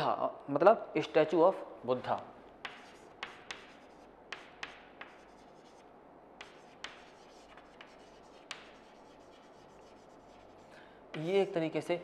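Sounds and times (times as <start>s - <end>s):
chalk tapping on board: 2.6s - 5.8s, 6.4s - 11.5s
chalk scratching on blackboard: 2.6s - 11.6s.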